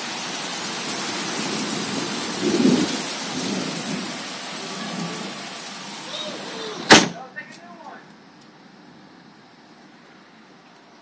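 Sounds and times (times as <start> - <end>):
heavy rain on water and patio: 0.0 - 7.9.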